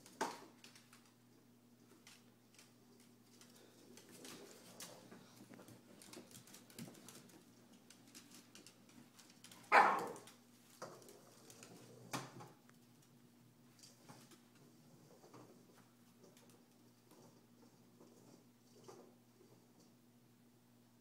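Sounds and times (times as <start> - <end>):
small dog barking: 9.7 - 10.3.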